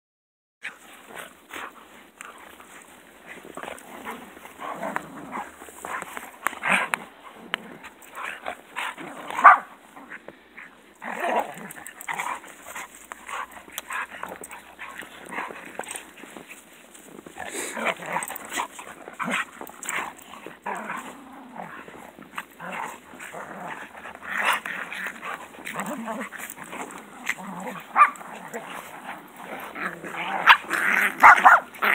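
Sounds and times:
dogs growling and snarling: 0.6 - 31.9.

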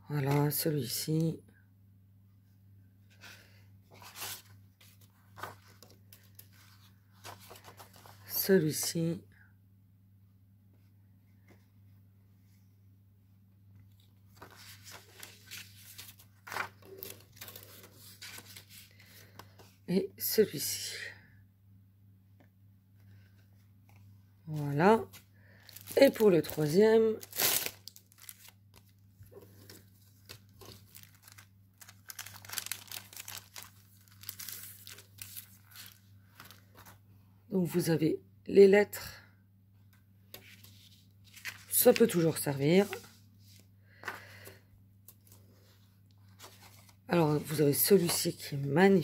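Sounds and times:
plastic sheets rustling and crinkling: 3.2 - 8.5, 14.0 - 19.4, 24.5 - 37.0, 40.4 - 44.4, 45.1 - 48.5
plastic packaging crinkling: 14.4 - 18.7, 25.6 - 29.0, 29.6 - 36.7.

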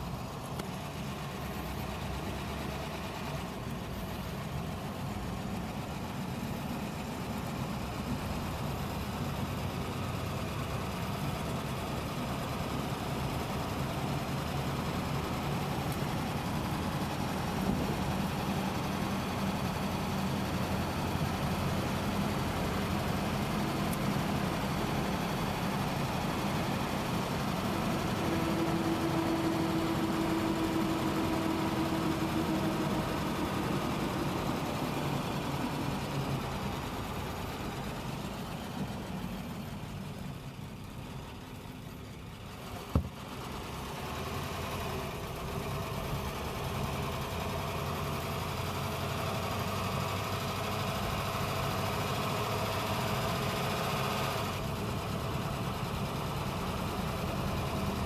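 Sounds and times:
steady whine: 0.0 - 43.2
car engine running: 0.0 - 58.0
road noise: 0.0 - 58.0.

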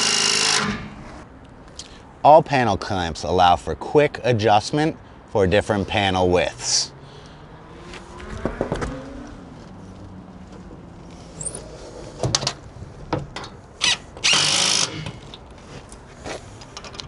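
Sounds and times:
power drill running: 0.0 - 0.8, 13.8 - 15.2.

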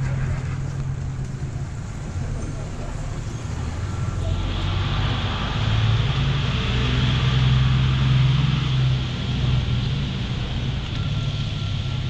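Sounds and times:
low engine hum: 0.0 - 12.0.

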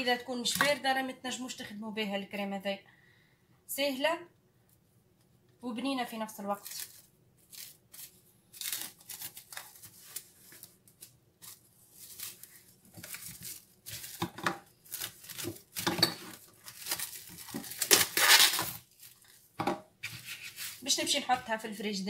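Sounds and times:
cling film crinkling and rustling: 6.5 - 20.9.

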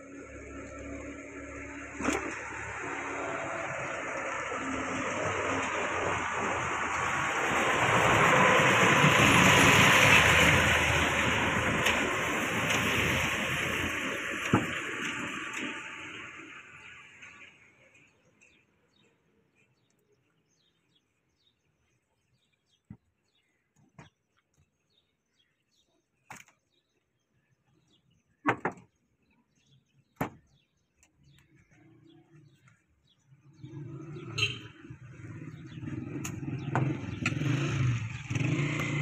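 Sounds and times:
vehicle engine: 0.0 - 18.6, 31.2 - 39.0.

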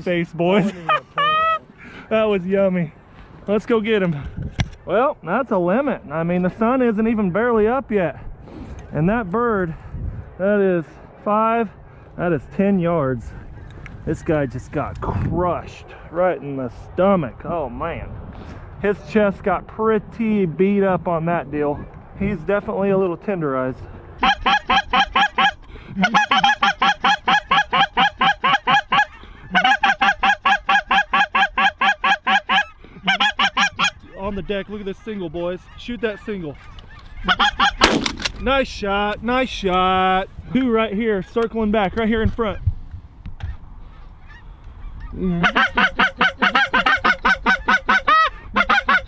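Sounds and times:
goose honks: 24.2 - 34.1, 35.0 - 37.9, 44.2 - 49.0.

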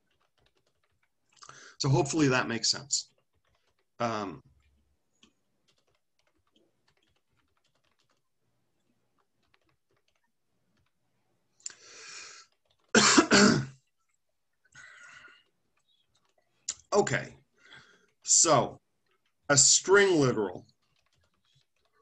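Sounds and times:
man coughing: 13.0 - 13.8
breathy noise: 14.6 - 16.5.

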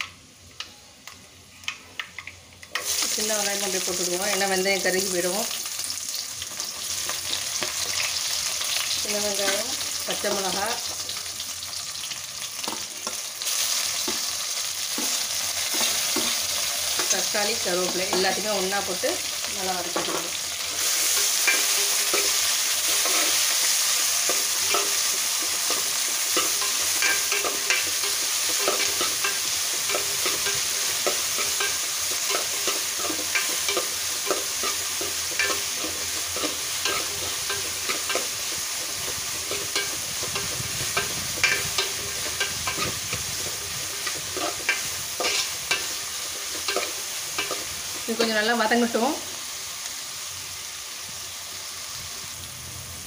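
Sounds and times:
vegetables sizzling in hot oil: 0.0 - 53.0
metal ladle scraping a pot: 39.5 - 47.6.

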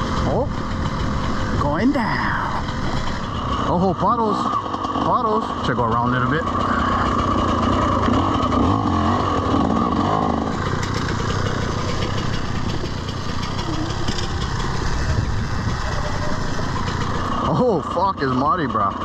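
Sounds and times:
dirt bike engine running: 0.0 - 19.0.

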